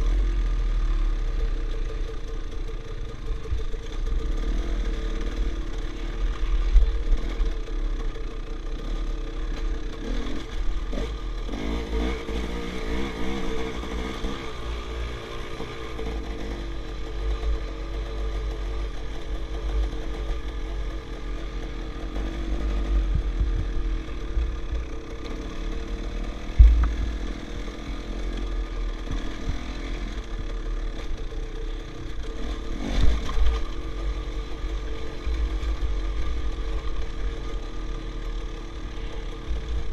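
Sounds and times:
dirt bike engine revving: 0:04.2 - 0:39.9
sharp thump: 0:26.5 - 0:27.2.

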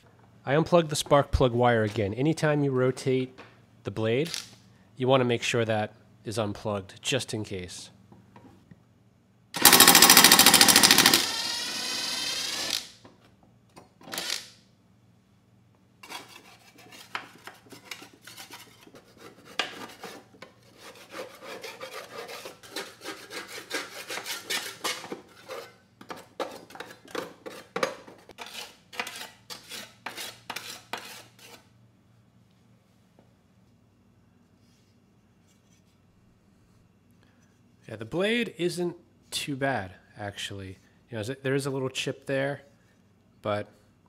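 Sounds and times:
power tool running: 0:09.6 - 0:13.0
scraper scraping dirt off metal: 0:16.0 - 0:31.6.

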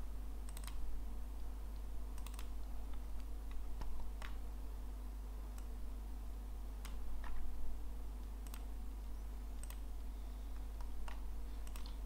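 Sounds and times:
steady low hum: 0:00.0 - 0:12.0
mouse and keyboard clicks: 0:02.2 - 0:04.4, 0:09.6 - 0:09.9, 0:10.8 - 0:12.0.

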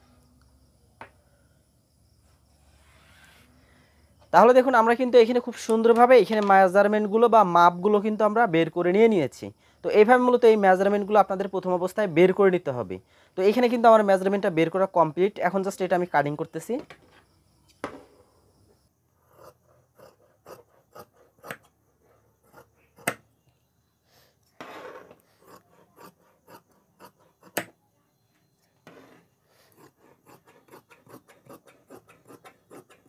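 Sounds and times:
shears snipping through fabric: 0:29.7 - 0:33.0.

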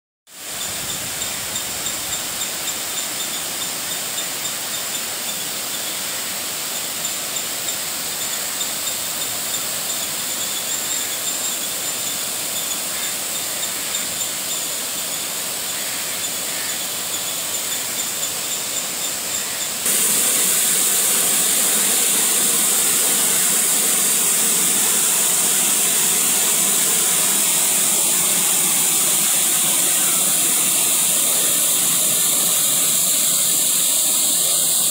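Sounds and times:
waterfall rushing: 0:11.7 - 0:34.9.

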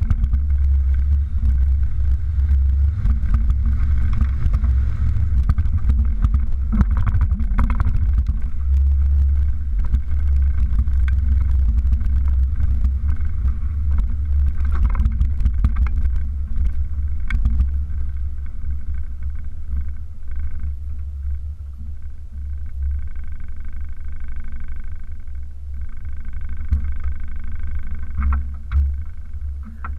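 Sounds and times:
wind buffeting: 0:00.0 - 0:21.5
faint steady whine: 0:00.0 - 0:29.9
truck engine rumble: 0:00.0 - 0:29.9.

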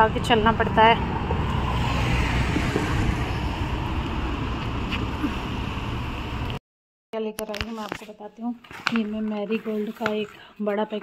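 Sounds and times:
road traffic passing: 0:00.0 - 0:06.6.

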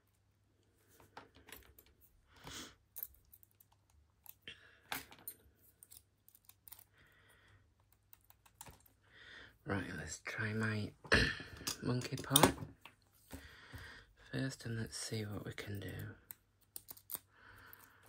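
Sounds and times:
padlock and keys clattering: 0:02.8 - 0:07.0, 0:15.6 - 0:18.0.

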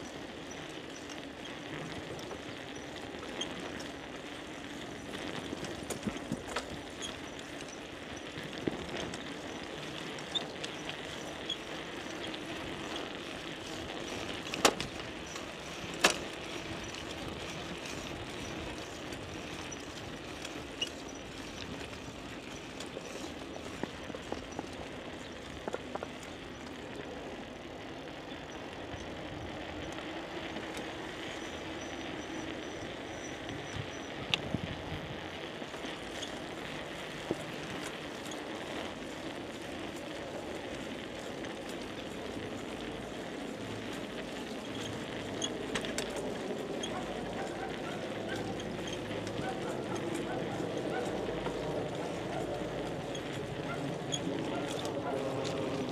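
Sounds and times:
bicycle rolling: 0:00.0 - 0:55.9
light clicks and rattles: 0:43.6 - 0:55.9.

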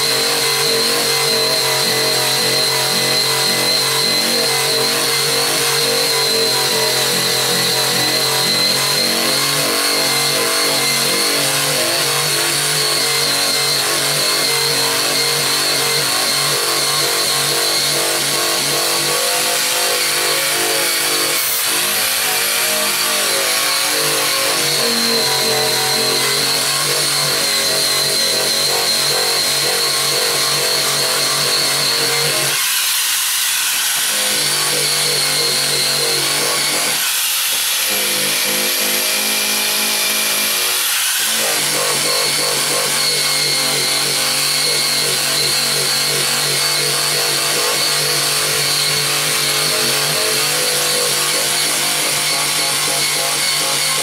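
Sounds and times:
abrasive wheel tool whining: 0:00.0 - 0:54.0.

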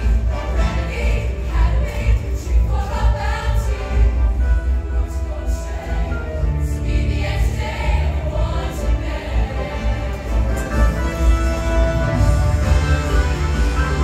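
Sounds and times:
choir singing in parts: 0:00.0 - 0:14.0
live backing band: 0:08.9 - 0:14.0.

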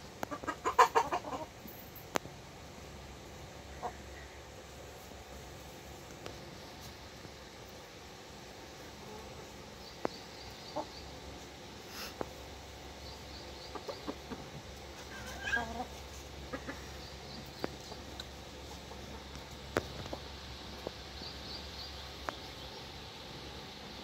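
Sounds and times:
chicken clucking: 0:00.2 - 0:01.6, 0:03.7 - 0:04.4, 0:09.0 - 0:11.1, 0:13.0 - 0:22.4
pecking and scratching in dirt: 0:03.7 - 0:08.0, 0:08.6 - 0:23.0.

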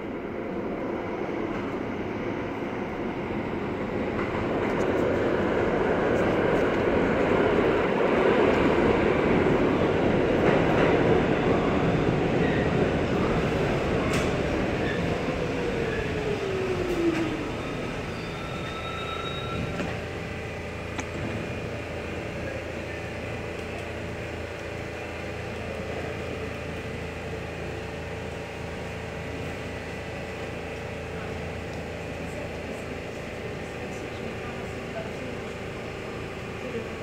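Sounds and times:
standing train humming: 0:00.0 - 0:37.0
subway train motor whine: 0:00.0 - 0:37.0
high brake squeal: 0:17.6 - 0:20.0.

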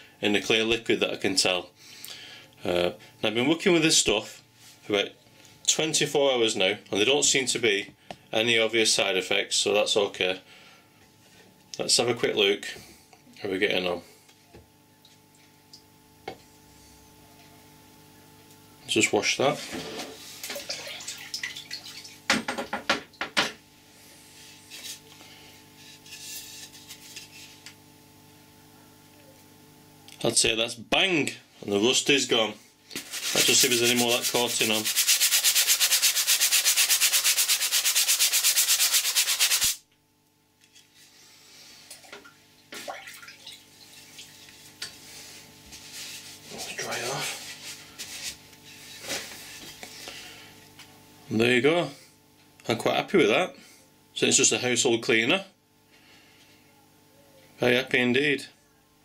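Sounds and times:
water splashing and dribbling: 0:20.5 - 0:22.3, 0:42.0 - 0:44.5.

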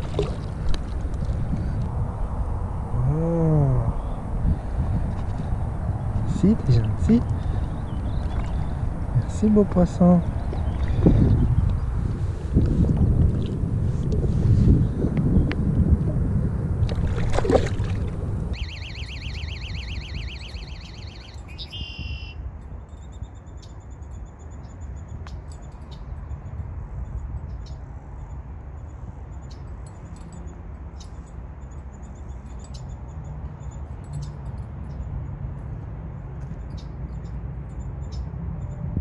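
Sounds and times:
bird calls and trills: 0:06.0 - 0:09.4, 0:10.2 - 0:11.9, 0:18.5 - 0:35.1, 0:36.4 - 0:38.8
faint bird chirps: 0:18.6 - 0:26.1.

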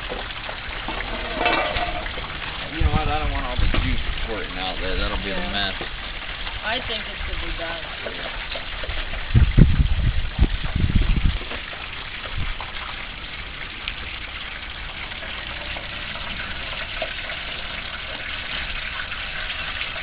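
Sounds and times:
hot oil bubbling and sizzling: 0:00.0 - 0:20.0.

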